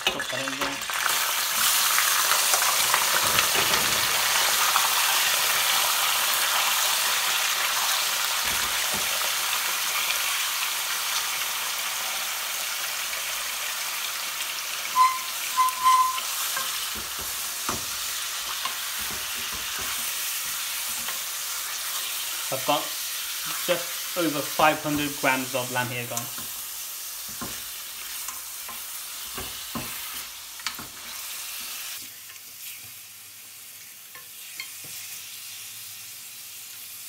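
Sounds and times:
meat sizzling in hot oil: 0.0s - 37.0s
short high-pitched tones: 14.9s - 16.4s
spatula knocking on pan: 15.8s - 18.0s, 18.9s - 20.6s, 27.3s - 27.7s.

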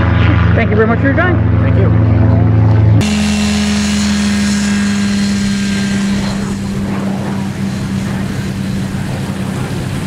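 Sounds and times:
light aircraft engine droning: 0.0s - 10.0s.

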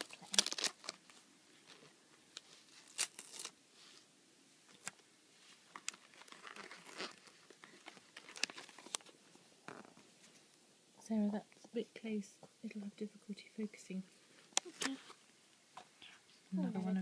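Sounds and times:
paper ripping: 0.0s - 3.6s, 5.7s - 10.0s
paper crinkling: 0.0s - 4.0s, 4.7s - 10.5s.

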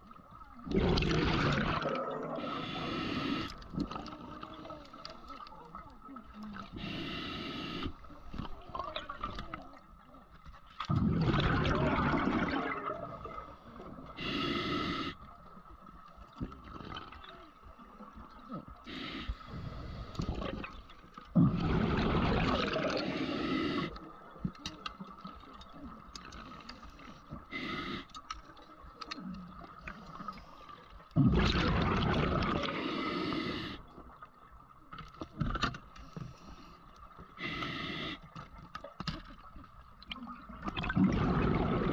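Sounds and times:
bubbles bursting underwater: 0.7s - 2.9s, 10.9s - 13.4s, 21.4s - 23.1s, 31.2s - 32.8s, 40.7s - 41.9s
hiss of inhaled air: 2.4s - 3.6s, 6.8s - 8.1s, 14.2s - 15.2s, 18.9s - 20.3s, 22.9s - 24.0s, 27.5s - 28.1s, 32.6s - 33.8s, 37.4s - 38.3s.

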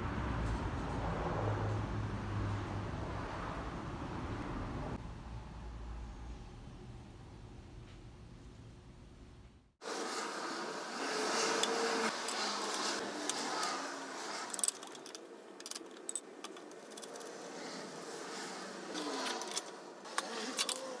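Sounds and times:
metallic clinks and jingling: 14.5s - 17.6s.

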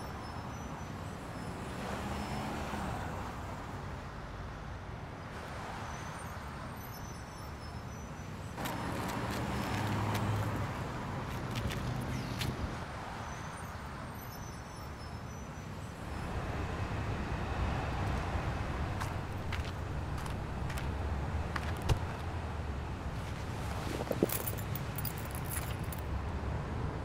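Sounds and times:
cars passing on wet road: 8.6s - 13.2s, 16.2s - 26.1s.

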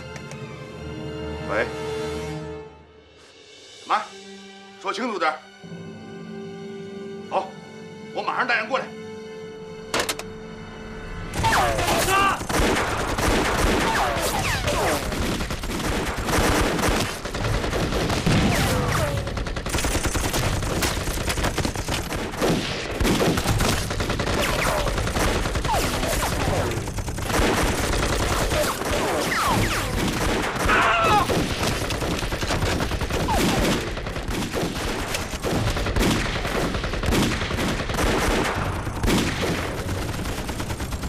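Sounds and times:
heavy gunfire: 11.4s - 41.0s.

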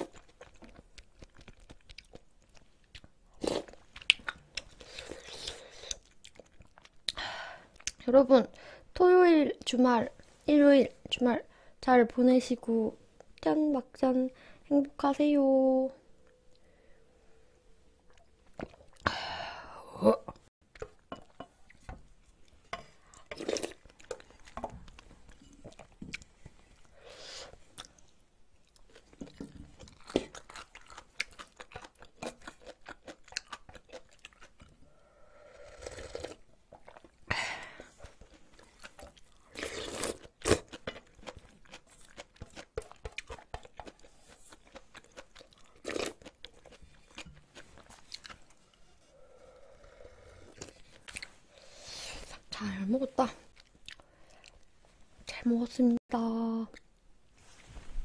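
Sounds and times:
wet chewing and mouth clicks: 0.0s - 8.1s, 21.6s - 26.9s, 27.6s - 34.9s, 36.0s - 48.7s, 50.5s - 51.4s, 53.5s - 54.7s.

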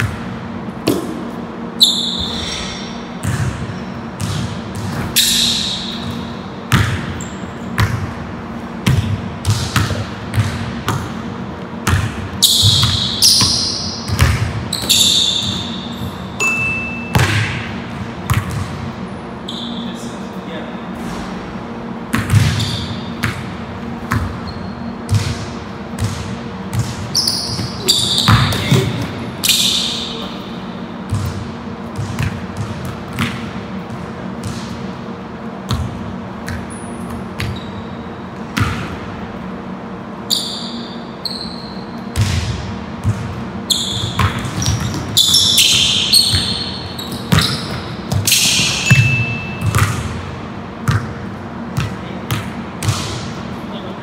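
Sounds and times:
basketball bouncing on gym floor: 0.0s - 1.3s, 3.1s - 19.0s, 22.0s - 35.0s, 35.6s - 39.2s, 41.6s - 53.5s
sneaker squeaks: 0.0s - 8.1s, 11.8s - 21.3s, 22.1s - 34.8s, 36.5s - 39.0s, 40.2s - 50.2s.

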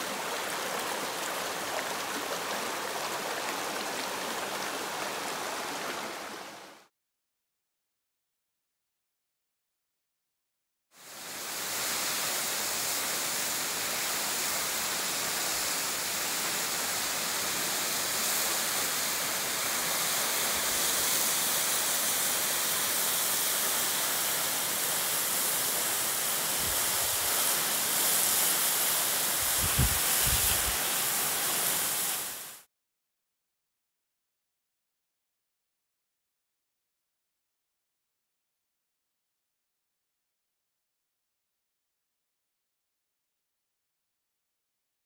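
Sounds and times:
waterfall splashing on stones: 11.6s - 32.7s.

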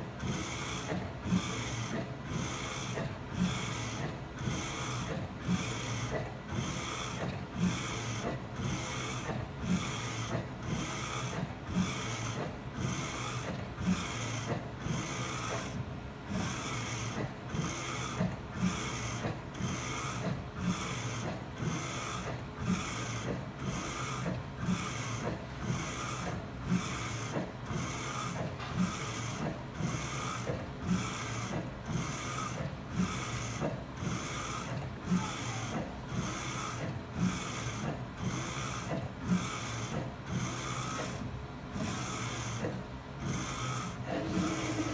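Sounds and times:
steady machine hum: 0.0s - 44.9s
print head carriage swishing: 43.3s - 44.9s.

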